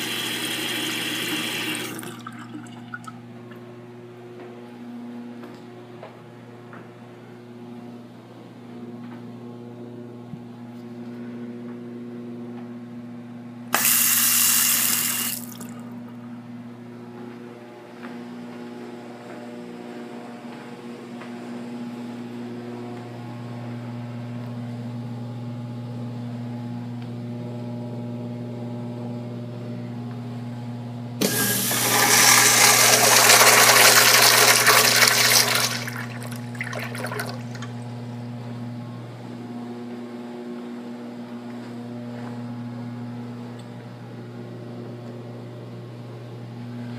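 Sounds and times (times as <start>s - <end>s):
urinal flushing: 0.0s - 3.2s, 13.8s - 16.0s, 31.2s - 37.9s.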